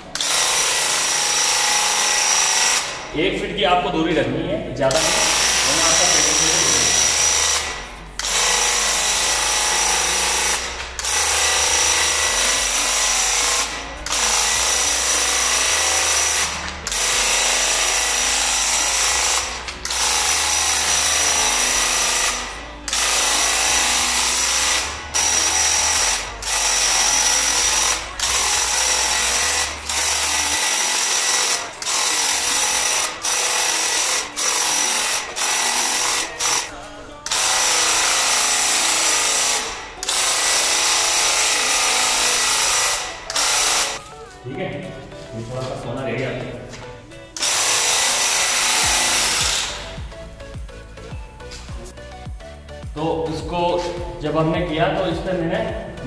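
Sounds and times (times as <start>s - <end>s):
paint sprayer pump buzzing hiss: 0.0s - 3.1s, 4.9s - 44.4s, 47.2s - 53.0s.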